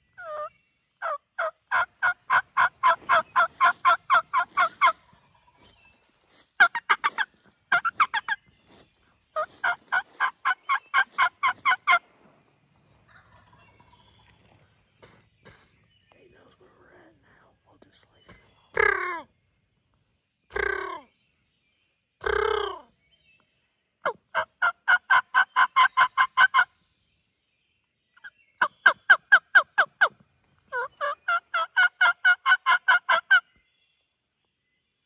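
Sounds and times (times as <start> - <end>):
wild turkey calling: 0.0 - 16.0, 18.2 - 19.4, 24.0 - 26.8, 28.2 - 33.6
turkey yelping: 0.2 - 5.2, 6.6 - 8.4, 9.4 - 12.1, 24.0 - 26.7, 28.6 - 33.4.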